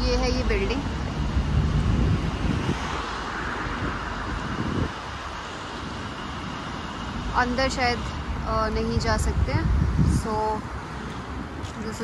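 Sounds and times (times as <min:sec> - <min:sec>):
traffic background hum: 0:00.0 - 0:12.0
vehicle passing by: 0:00.8 - 0:08.5.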